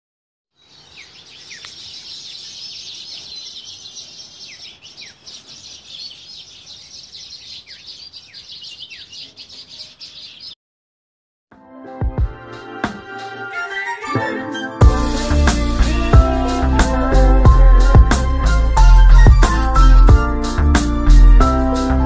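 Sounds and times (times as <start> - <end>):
birds chirping: 0.5 - 10.6.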